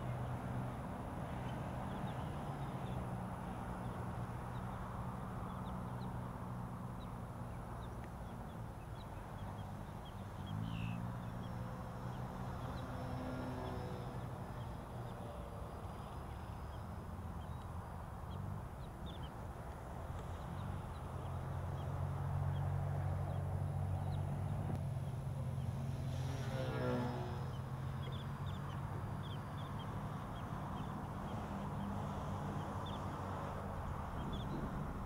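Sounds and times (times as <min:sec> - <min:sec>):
model airplane motor droning: 0:25.8 - 0:28.2.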